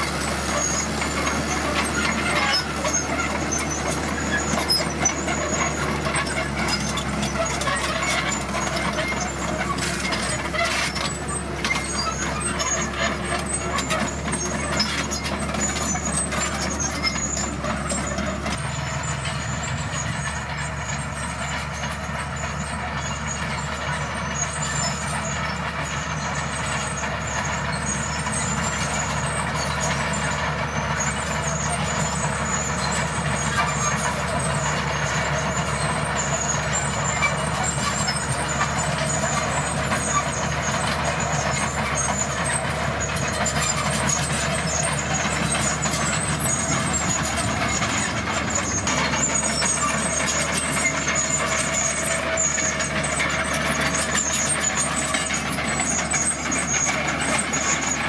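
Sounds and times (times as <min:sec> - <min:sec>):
bulldozer diesel engine: 0:00.0 - 0:58.0
steel tracks clanking: 0:00.0 - 0:58.0.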